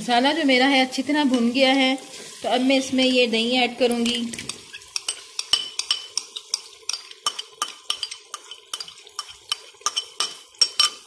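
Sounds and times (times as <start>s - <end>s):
metal spoon clinking on clay pot: 4.0s - 11.0s.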